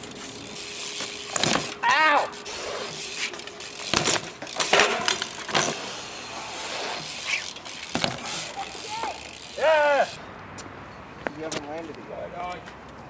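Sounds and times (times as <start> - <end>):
bike tyres rolling on concrete: 0.0 - 13.0
bike knocking on ground: 1.0 - 1.9, 3.8 - 5.8, 7.8 - 8.4.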